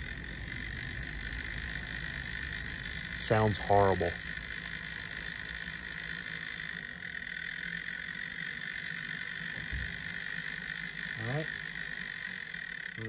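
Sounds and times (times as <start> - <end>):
model locomotive motor whining: 0.0 - 13.0.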